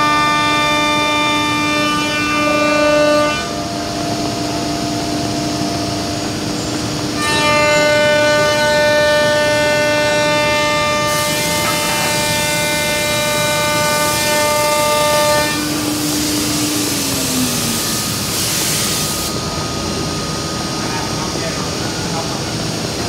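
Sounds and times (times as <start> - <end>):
router spindle high whine: 2.0 - 23.0
bright hiss: 15.8 - 19.5.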